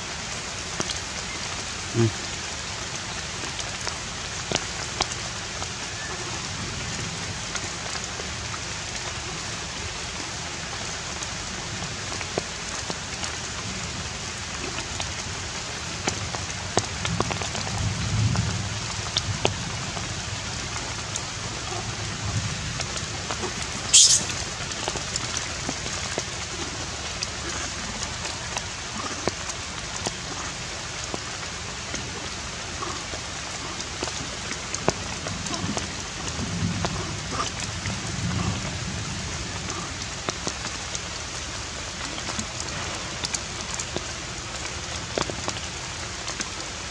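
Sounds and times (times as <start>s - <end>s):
steady outdoor hiss: 0.0s - 46.9s
faint scattered ticks: 23.9s - 24.4s
sharp high-pitched squeak: 23.9s - 24.4s.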